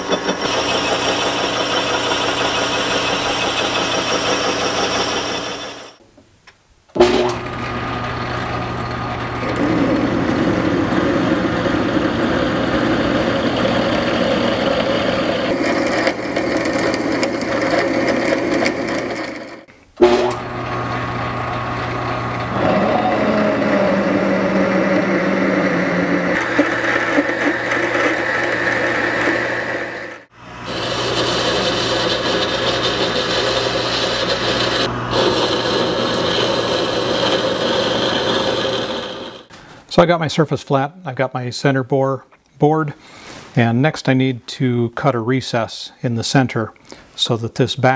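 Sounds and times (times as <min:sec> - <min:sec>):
metal lathe cutting steel: 0:00.0 - 0:06.0, 0:07.0 - 0:39.5.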